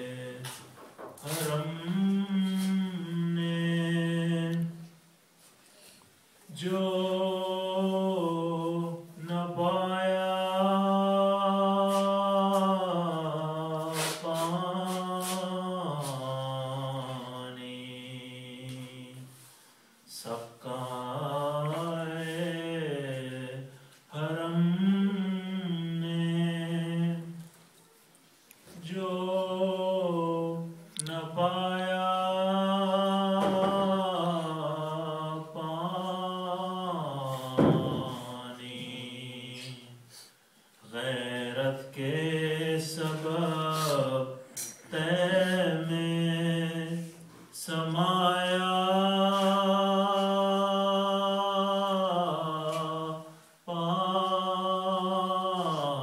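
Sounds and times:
man chanting unaccompanied: 0:00.0 - 0:04.9, 0:06.5 - 0:19.3, 0:20.1 - 0:27.4, 0:28.7 - 0:40.1, 0:40.8 - 0:56.0.

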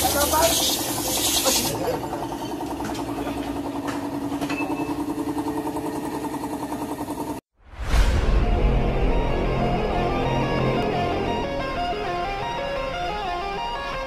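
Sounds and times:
hiss: 0:00.0 - 0:01.7
vehicle engine running: 0:00.0 - 0:07.4.

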